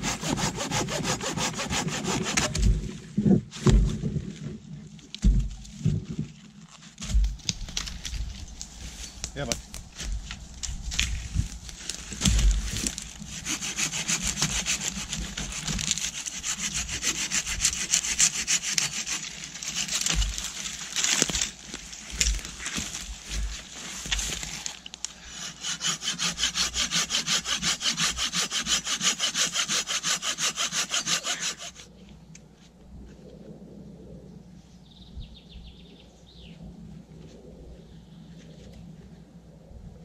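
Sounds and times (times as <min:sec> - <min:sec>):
hand saw cutting wood: 0:00.0 - 0:02.8, 0:12.3 - 0:21.5, 0:25.3 - 0:31.9.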